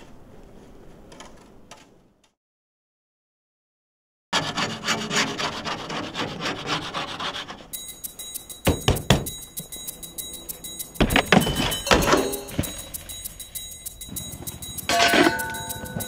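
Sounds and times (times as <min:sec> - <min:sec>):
knocks on metal box: 0:08.7 - 0:09.4.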